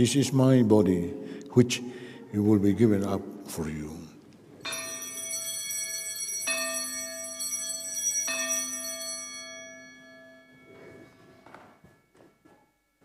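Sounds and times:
altar bells ringing: 0:04.6 - 0:13.0.

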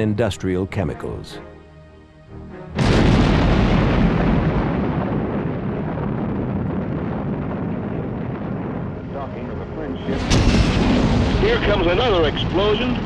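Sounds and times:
explosion rumble: 0:02.8 - 0:13.0.

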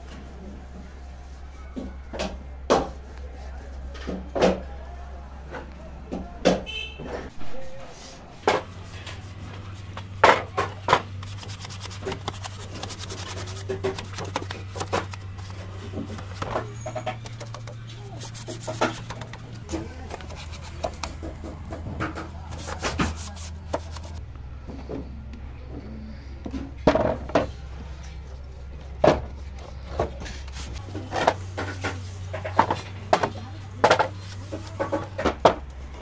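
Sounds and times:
steady low hum: 0:07.3 - 0:36.0
hand rubbing and scraping wood: 0:07.9 - 0:24.2, 0:27.6 - 0:35.2.

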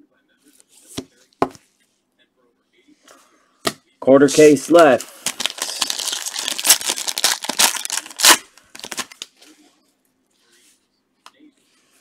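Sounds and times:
wrapper ripping and crinkling: 0:05.1 - 0:09.3.

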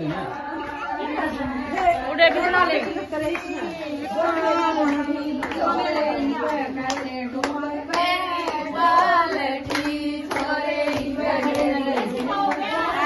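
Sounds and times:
women singing together: 0:00.0 - 0:13.0
handclaps: 0:04.3 - 0:13.0.

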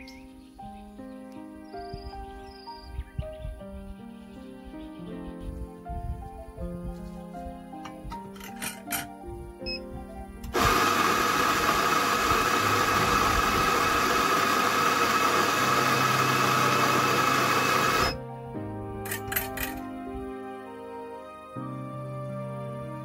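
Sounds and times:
coffee grinder grinding beans: 0:10.5 - 0:18.2, 0:19.1 - 0:19.8.

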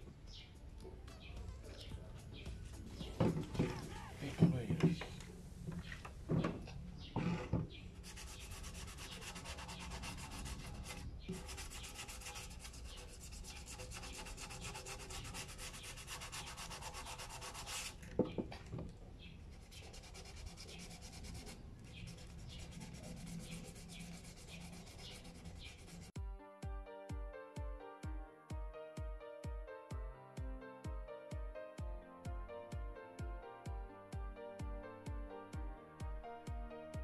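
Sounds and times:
sandpaper rubbing strokes: 0:08.0 - 0:18.0, 0:19.5 - 0:26.2.

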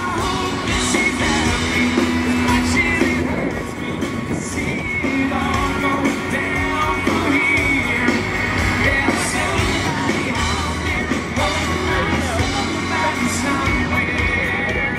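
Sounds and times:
drums: 0:00.0 - 0:14.9
live band playing: 0:00.0 - 0:14.9.

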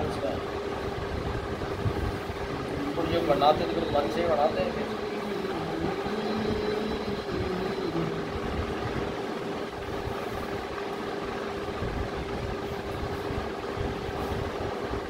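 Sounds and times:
constant noisy din: 0:00.0 - 0:15.0
steady background hum: 0:00.0 - 0:15.0.

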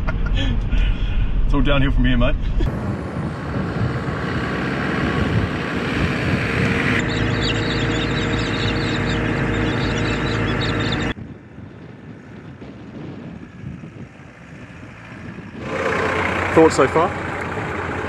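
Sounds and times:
tyre and road noise: 0:00.0 - 0:18.0
vehicle engine hum: 0:00.0 - 0:18.0.

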